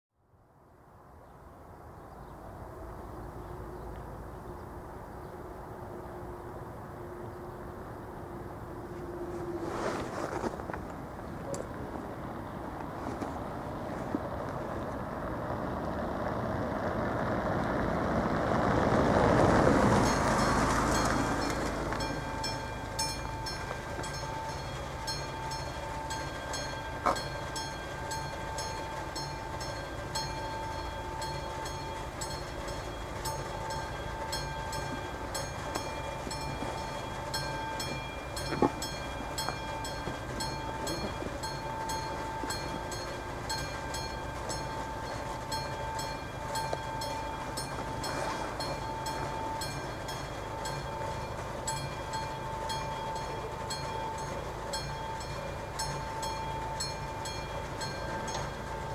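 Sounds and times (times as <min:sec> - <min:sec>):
crossing warning bell ringing: 0:19.0 - 0:58.9.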